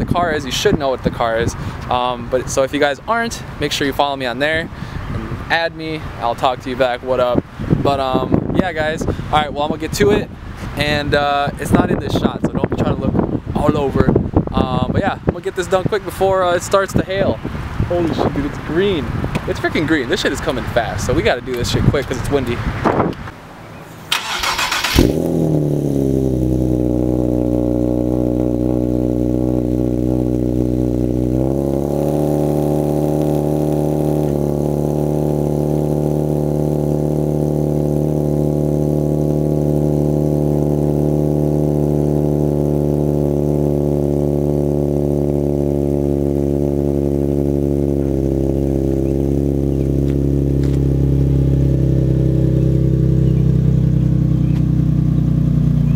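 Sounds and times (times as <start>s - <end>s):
car engine idling: 23.3s - 55.9s.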